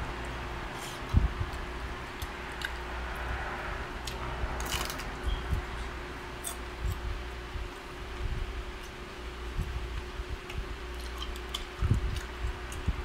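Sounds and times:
steady low hum: 0:00.0 - 0:13.0
chewing: 0:09.9 - 0:13.0.

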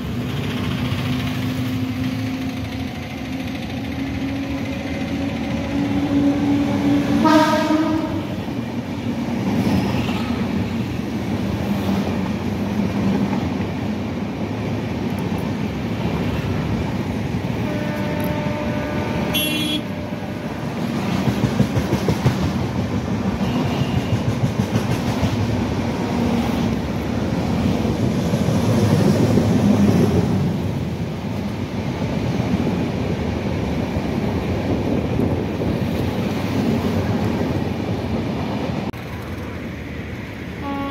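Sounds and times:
train wheels rumbling on rails: 0:00.0 - 0:40.9
locomotive horn: 0:05.6 - 0:08.5, 0:17.5 - 0:20.8, 0:40.6 - 0:40.9
horn-like tone: 0:07.2 - 0:08.3, 0:17.6 - 0:20.6, 0:40.6 - 0:40.9.

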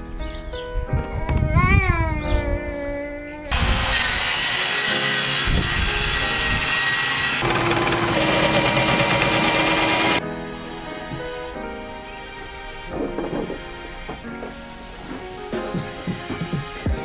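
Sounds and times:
cordless drill boring into wood: 0:03.5 - 0:10.2.

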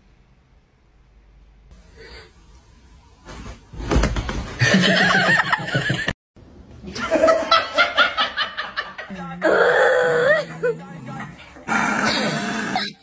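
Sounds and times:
people laughing: 0:04.6 - 0:06.2, 0:06.8 - 0:09.1.

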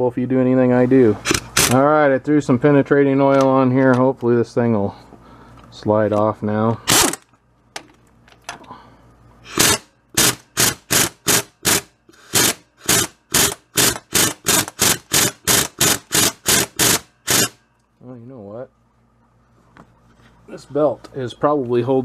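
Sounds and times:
impact wrench bursts: 0:01.3 - 0:01.8, 0:06.9 - 0:07.3, 0:09.5 - 0:17.6.

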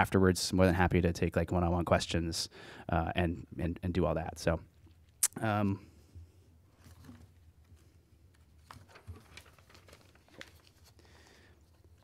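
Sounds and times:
faint clicks and rustles: 0:06.2 - 0:12.0.

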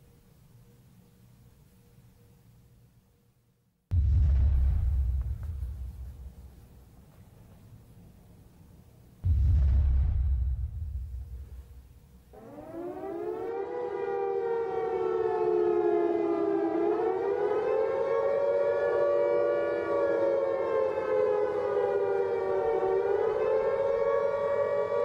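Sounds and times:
air-raid siren wailing: 0:12.3 - 0:25.0.

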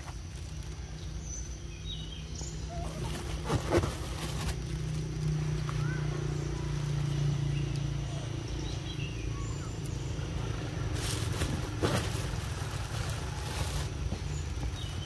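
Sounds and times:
faint chirps: 0:05.5 - 0:10.5.

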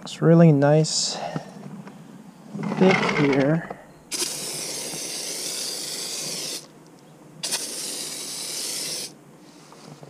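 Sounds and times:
foam sprayer hissing: 0:04.1 - 0:06.7, 0:07.4 - 0:09.2.

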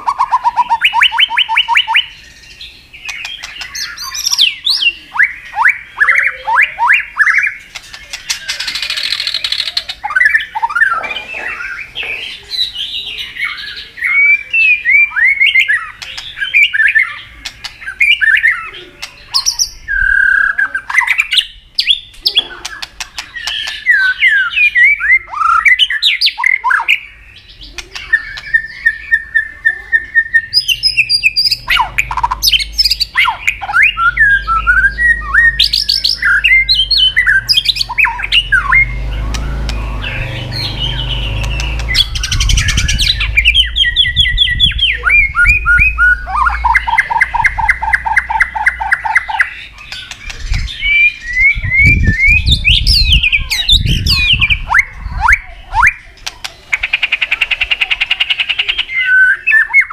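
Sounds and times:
bird singing whistled phrases: 0:00.0 - 0:56.1, 0:58.3 - 0:59.9
sharp clicks: 0:39.2 - 0:40.1, 0:41.3 - 0:43.2, 0:49.8 - 0:50.7.

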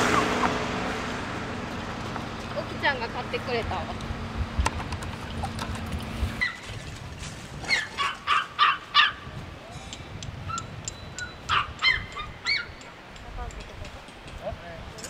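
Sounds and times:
dog barking: 0:07.7 - 0:09.2, 0:11.5 - 0:12.7.

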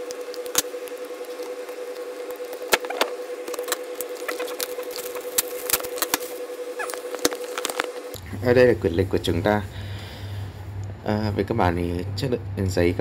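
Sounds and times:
plastic wrap crinkling: 0:00.0 - 0:08.2
steady hum: 0:00.0 - 0:13.0.

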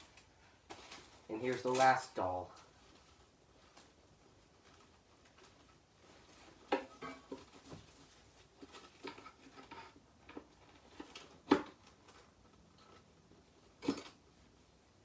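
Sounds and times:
packing paper rustling and crinkling: 0:00.0 - 0:06.7.

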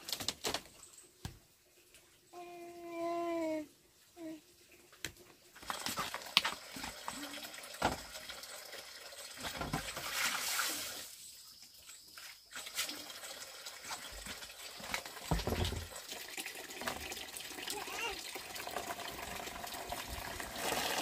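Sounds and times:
water splashing on bamboo slats: 0:09.3 - 0:11.2
plastic basin knocking: 0:15.3 - 0:15.9.

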